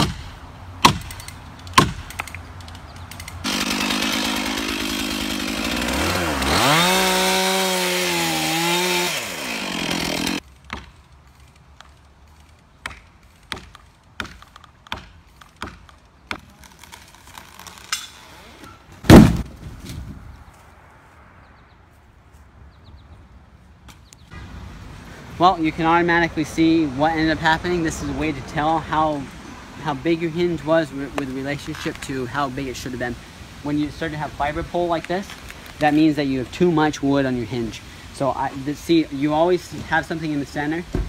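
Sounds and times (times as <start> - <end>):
tree cracking: 1.8 - 14.1, 14.7 - 20.1
chainsaw cutting wood: 3.2 - 10.9
tree hitting the ground: 19.0 - 20.3.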